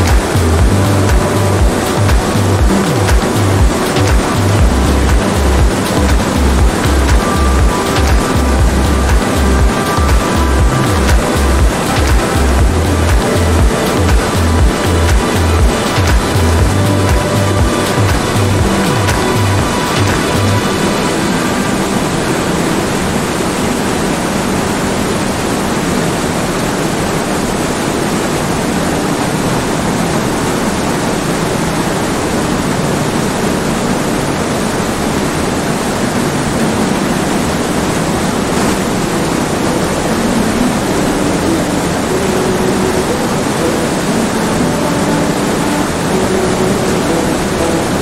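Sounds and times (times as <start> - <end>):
car road noise: 0.0 - 24.1.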